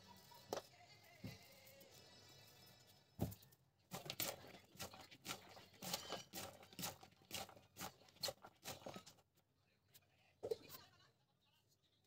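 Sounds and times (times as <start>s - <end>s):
vegetables rustling and crunching: 3.2s - 9.3s.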